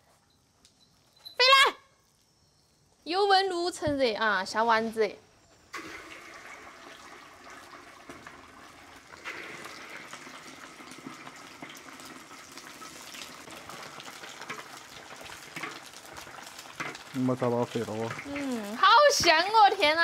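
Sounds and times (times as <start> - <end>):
meatballs deep-frying in oil: 5.7 - 20.0.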